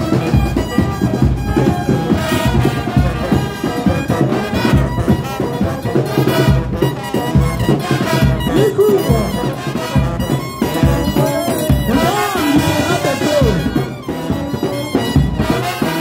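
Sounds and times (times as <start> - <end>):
brass band playing: 0.0 - 16.0.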